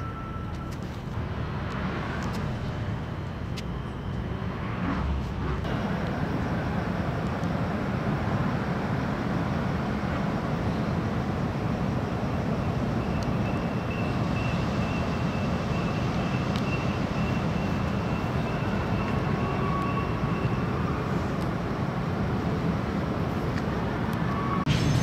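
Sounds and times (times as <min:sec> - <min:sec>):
faint high whine: 0:00.0 - 0:07.8
city traffic rumble: 0:00.0 - 0:25.0.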